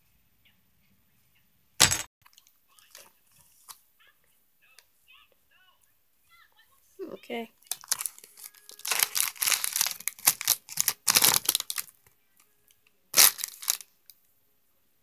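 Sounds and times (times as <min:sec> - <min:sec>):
plastic wrapper crinkling: 0:07.7 - 0:12.0, 0:13.2 - 0:13.9.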